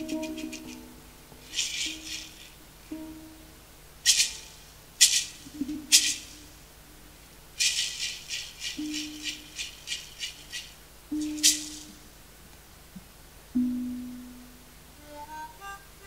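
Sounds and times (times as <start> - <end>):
low held instrument notes: 0.0 - 2.0, 2.7 - 3.8, 13.5 - 16.0
percussion rattle shaking: 0.0 - 2.6, 4.0 - 6.5, 7.6 - 12.0.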